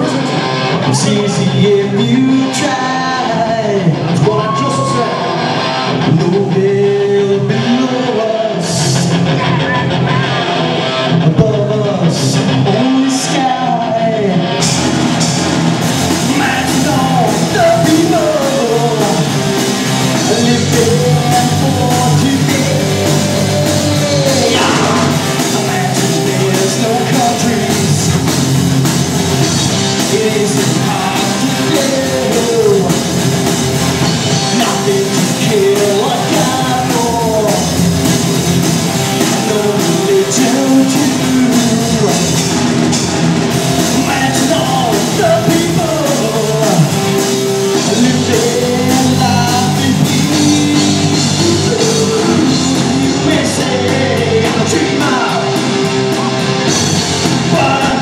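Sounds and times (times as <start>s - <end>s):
person singing: 0.0s - 42.9s, 43.5s - 58.0s
punk rock band playing: 0.0s - 58.0s.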